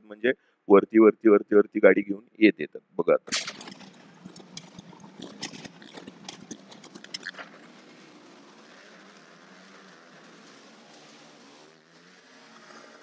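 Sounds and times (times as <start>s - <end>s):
motorcycle engines running: 3.5s - 13.0s.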